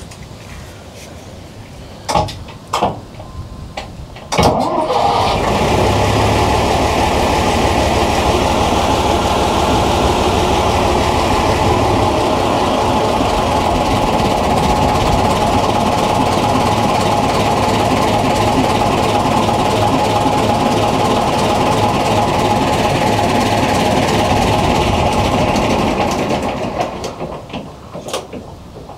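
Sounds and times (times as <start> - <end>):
boat engine running: 5.2 - 27.1.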